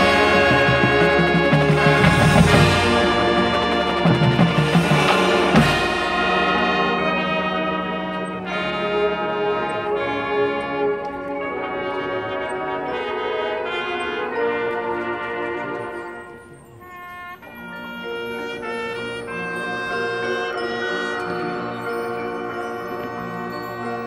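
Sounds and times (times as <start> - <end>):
held brass chords: 0.0 - 24.0
marching band playing: 0.0 - 24.0
drum hits: 0.6 - 7.0.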